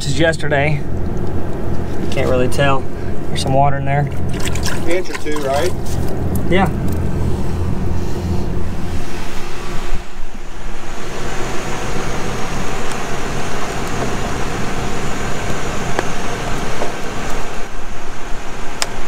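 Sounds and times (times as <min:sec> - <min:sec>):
farm machinery engine rumble: 0:00.0 - 0:18.9.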